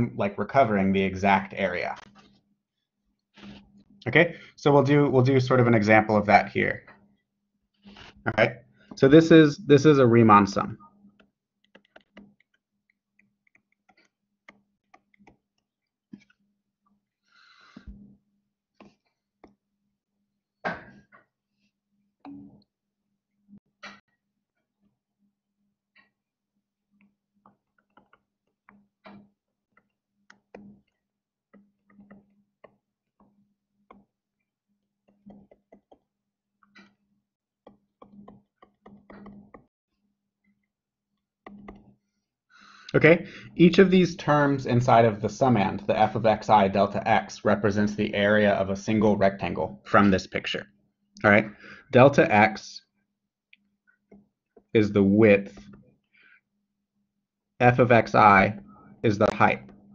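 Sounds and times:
stylus tapping and scratching on screen: 0.5s - 4.3s, 4.9s - 9.4s, 10.0s - 59.9s
stylus tapping on tablet screen: 11.1s - 16.4s, 27.0s - 37.0s, 37.6s - 39.7s, 41.4s - 42.0s.

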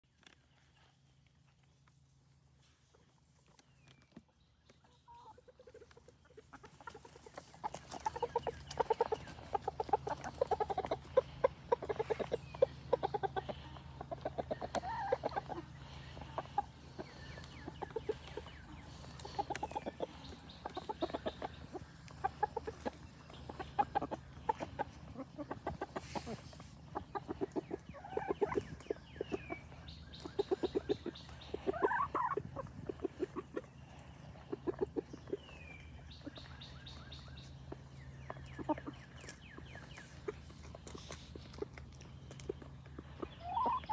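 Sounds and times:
hens clucking: 0.1s - 43.9s.

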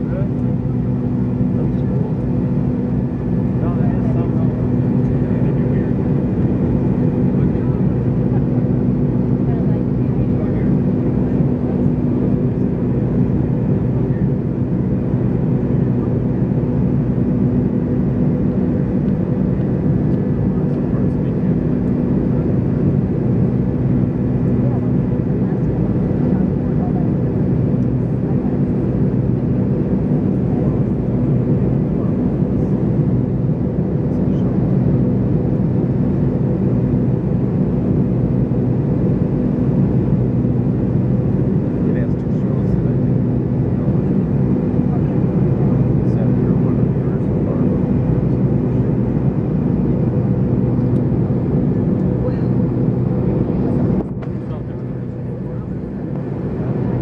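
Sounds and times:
jet engine drone in cabin: 0.0s - 57.0s.

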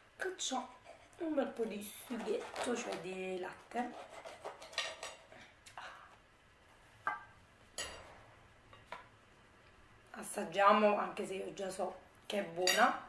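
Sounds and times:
knife and fork scraping plate: 3.9s - 5.3s.

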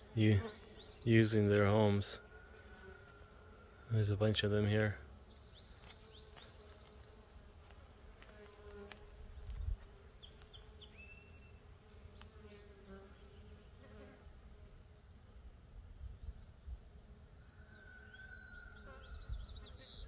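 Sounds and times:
bees buzzing: 0.0s - 14.9s.

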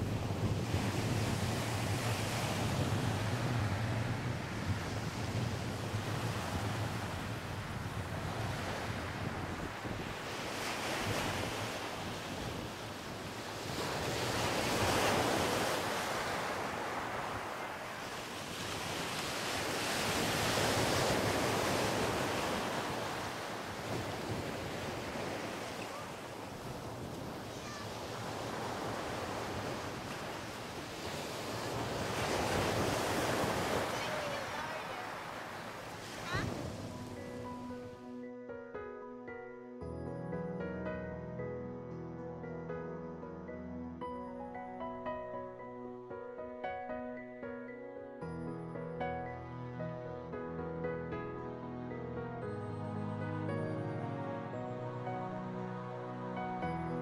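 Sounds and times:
wind buffeting microphone: 0.0s - 38.0s
waves breaking on pebbly beach: 13.4s - 36.8s.

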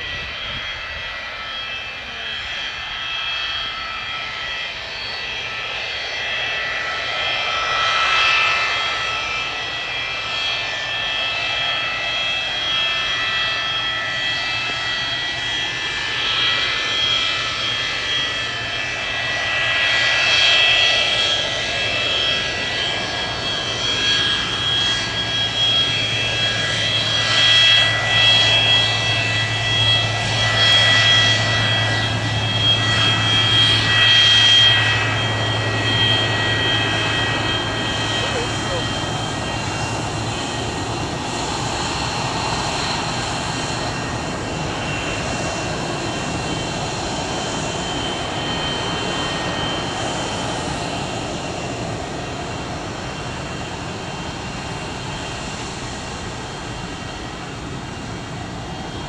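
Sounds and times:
jet engines whining: 0.0s - 59.0s
rushing jet noise: 21.6s - 59.0s.

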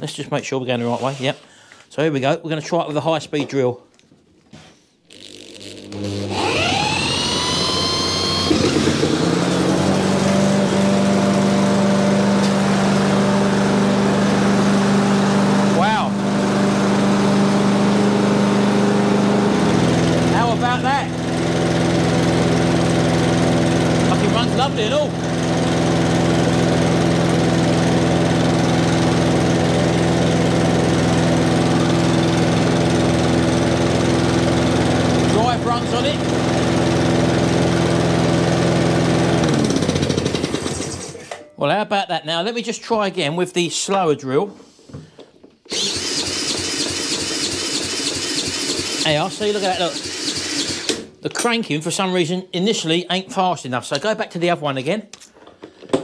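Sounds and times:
drill whining: 5.1s - 41.3s, 45.6s - 51.2s
lawnmower engine running: 5.6s - 41.2s, 45.7s - 51.0s.

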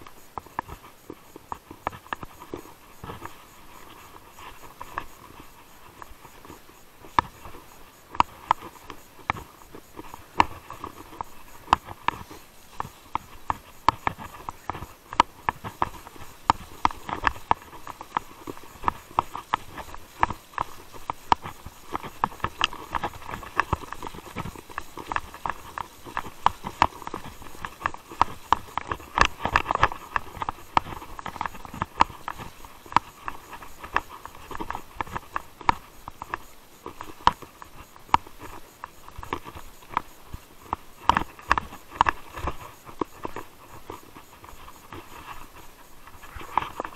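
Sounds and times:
bike tyres rolling on dirt: 0.0s - 46.9s.

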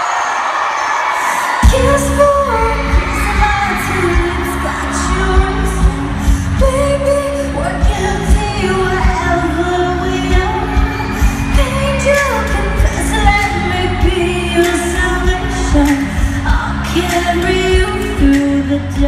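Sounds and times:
arena crowd noise: 0.0s - 19.0s
live pop band playing: 1.2s - 19.0s
person singing: 1.2s - 19.0s.

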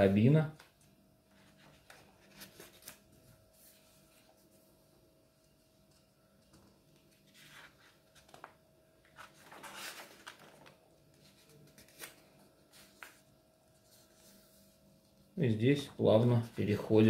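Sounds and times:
page flipping: 0.6s - 4.4s, 5.9s - 14.5s
paper rustle: 0.6s - 4.7s, 5.8s - 15.1s.

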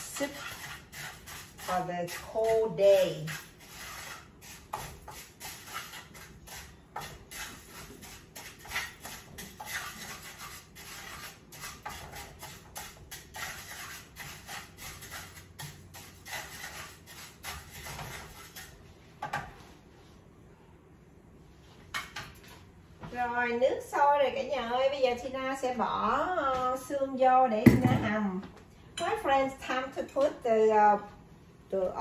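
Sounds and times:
spatula scraping rice in a pan: 0.0s - 19.4s.

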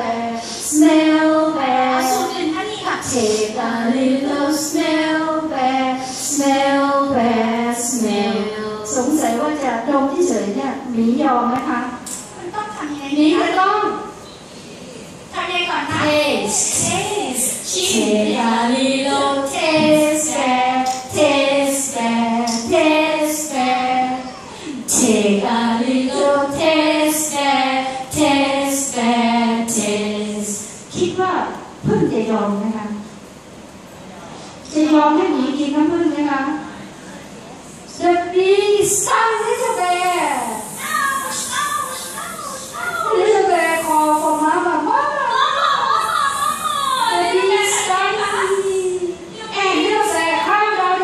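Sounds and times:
women singing unaccompanied: 0.0s - 9.7s, 15.9s - 32.1s.

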